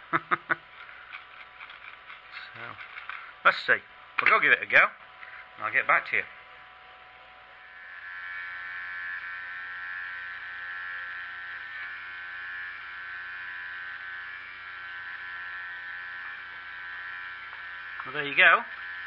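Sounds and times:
small gear motor whine: 0:06.4 - 0:19.0.

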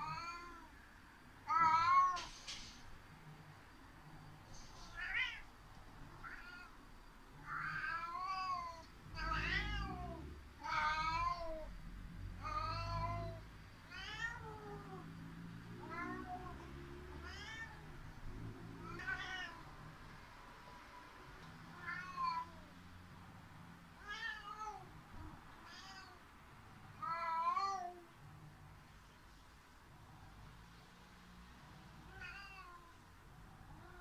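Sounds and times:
cat meowing hoarsely: 0:00.0 - 0:00.7, 0:04.8 - 0:05.5, 0:07.4 - 0:11.7, 0:12.4 - 0:15.1, 0:17.2 - 0:18.0, 0:18.8 - 0:19.7.

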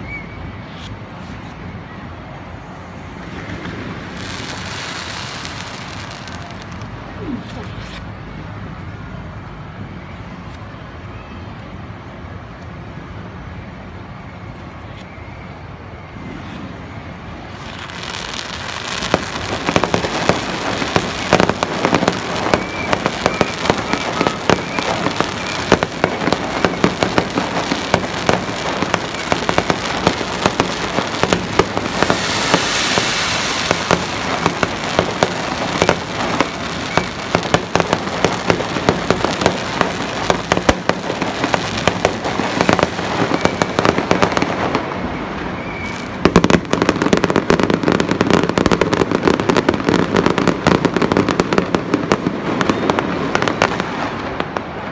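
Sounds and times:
fireworks crackling and popping: 0:00.0 - 0:09.6, 0:13.8 - 0:54.9
rushing hiss: 0:17.5 - 0:44.3.

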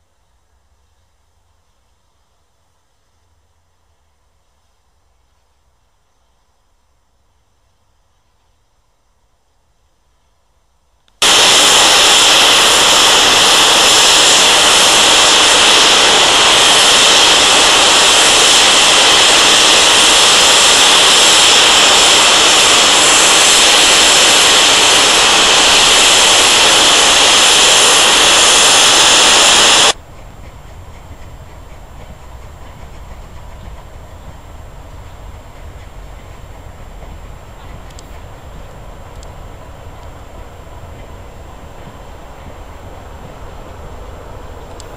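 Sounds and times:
steam hissing from safety valves: 0:11.2 - 0:30.0.

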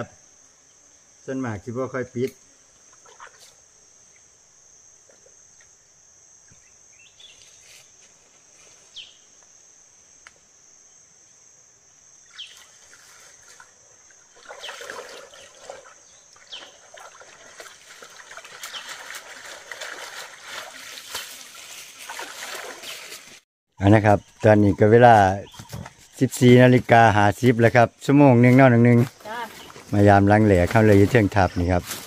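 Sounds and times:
insects droning: 0:00.0 - 0:32.0
splashing in shallow water: 0:12.6 - 0:23.4.

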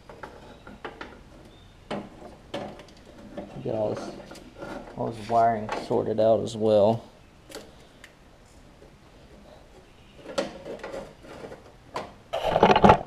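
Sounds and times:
scraping rustle: 0:00.0 - 0:06.1, 0:09.2 - 0:11.8.

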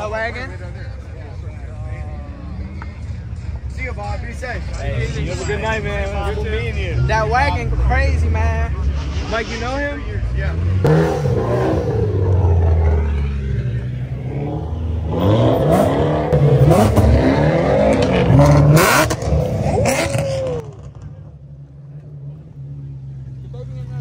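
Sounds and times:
car engine revving: 0:01.9 - 0:24.0.

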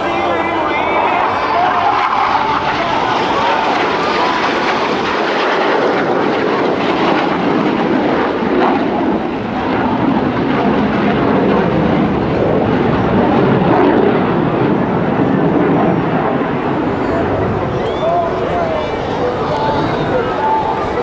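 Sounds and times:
jet flying overhead: 0:00.0 - 0:21.0.

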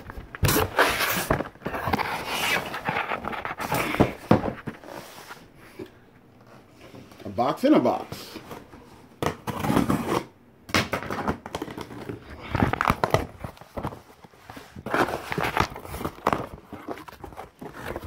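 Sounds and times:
cardboard packaging rustling: 0:00.0 - 0:07.1, 0:11.0 - 0:18.0.

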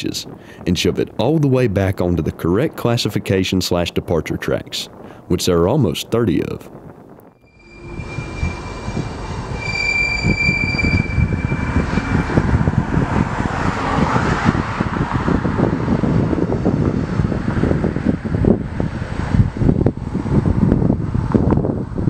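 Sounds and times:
train wheel squeal: 0:07.4 - 0:14.2.

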